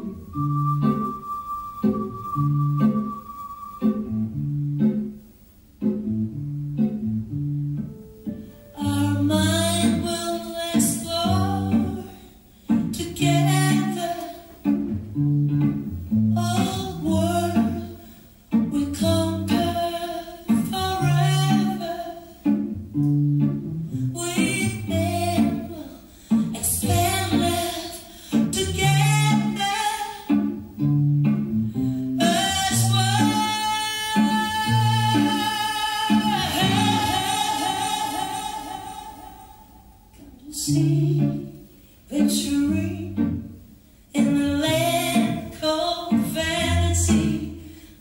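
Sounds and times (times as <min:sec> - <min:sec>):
pop music with singing: 0:32.2 - 0:39.8.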